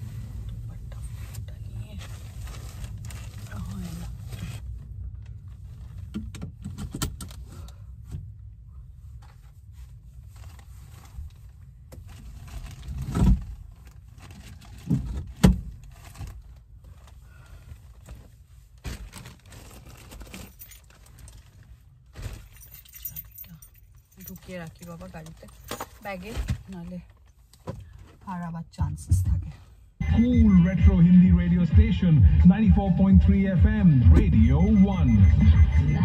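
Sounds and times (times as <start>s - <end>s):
plastic seat covers rustling: 1.0s - 6.1s, 9.3s - 23.2s.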